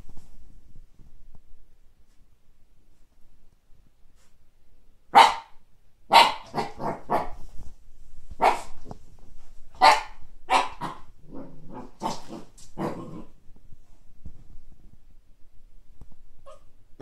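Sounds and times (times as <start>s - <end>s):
puppy barking: 5.1s - 7.4s, 8.4s - 8.8s, 9.8s - 11.1s, 16.4s - 16.7s.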